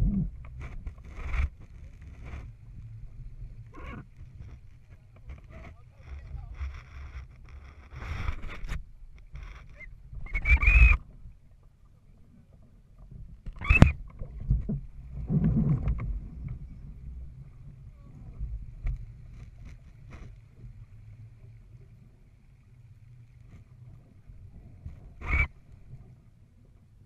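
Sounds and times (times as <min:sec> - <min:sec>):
wind rumbling: 0:00.0 - 0:11.3, 0:13.2 - 0:19.3
water sloshing against hull: 0:00.0 - 0:27.0
brief high squeaks: 0:09.4 - 0:11.0, 0:13.6 - 0:14.0, 0:25.2 - 0:25.6.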